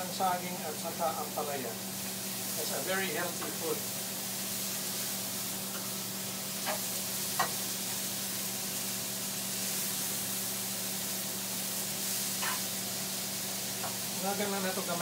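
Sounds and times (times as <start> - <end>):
vegetables sizzling in oil: 0.0 - 15.0
spatula tapping and scraping: 6.6 - 7.6, 12.4 - 12.7, 13.8 - 14.0.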